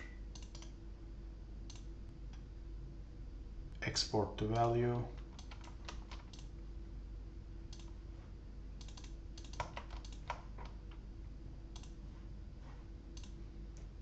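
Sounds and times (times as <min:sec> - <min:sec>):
faint steady hum: 0:00.0 - 0:14.0
computer keyboard keystrokes: 0:00.3 - 0:00.7, 0:04.5 - 0:06.5, 0:07.7 - 0:07.9, 0:08.8 - 0:11.0, 0:11.7 - 0:12.0.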